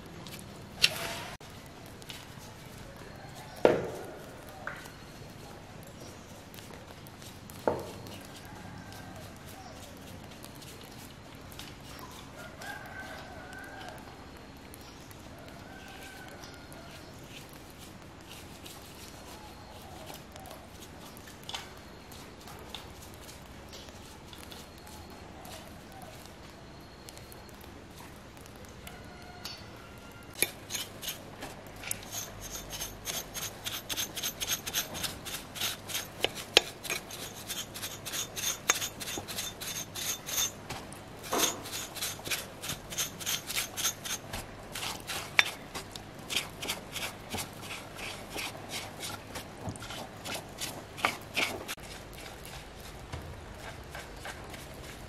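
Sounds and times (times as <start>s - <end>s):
bristle brush scrubbing: 31.8s - 40.6s, 41.2s - 52.6s.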